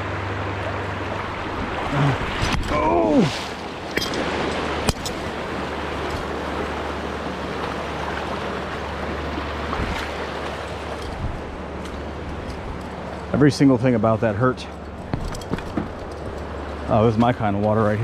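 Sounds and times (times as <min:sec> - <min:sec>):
river water rushing over rocks: 0:00.0 - 0:13.3.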